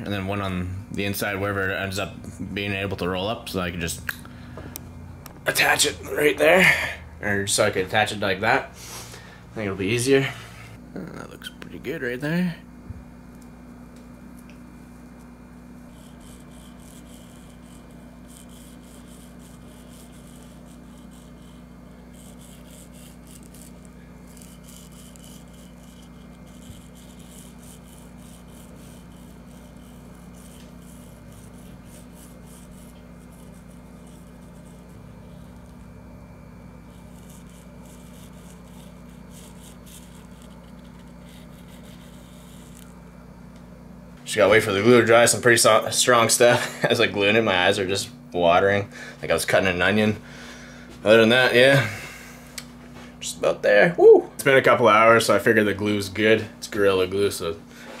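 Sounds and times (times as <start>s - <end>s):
steady low hum: 0.0s - 58.0s
glue nozzle rubbing on fabric: 15.9s - 35.0s, 36.8s - 42.9s.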